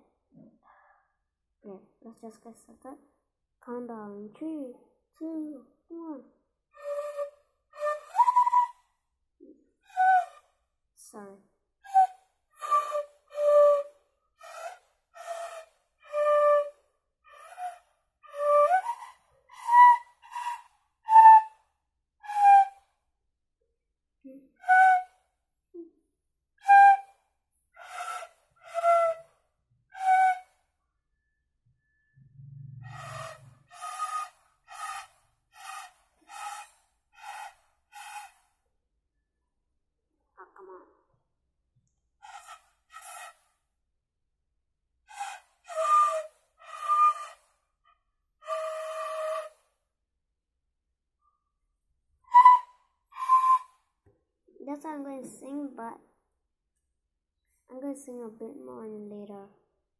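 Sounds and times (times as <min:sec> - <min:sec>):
bamboo flute notes: 0:06.8 - 0:08.8, 0:09.9 - 0:10.4, 0:11.9 - 0:21.6, 0:22.2 - 0:22.8, 0:24.6 - 0:25.2, 0:26.6 - 0:27.1, 0:27.8 - 0:29.3, 0:30.0 - 0:30.5, 0:32.8 - 0:38.4, 0:45.1 - 0:47.5, 0:48.4 - 0:49.7, 0:52.3 - 0:53.8.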